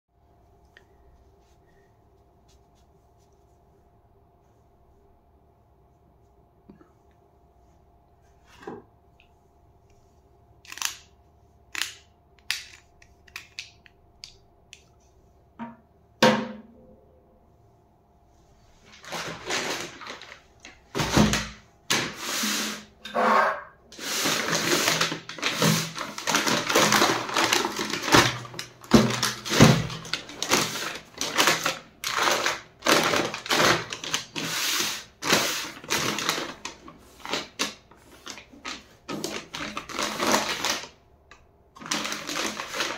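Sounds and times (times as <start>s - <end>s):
paper bag crinkling: 18.8s - 21.4s, 24.0s - 41.0s, 41.8s - 42.9s.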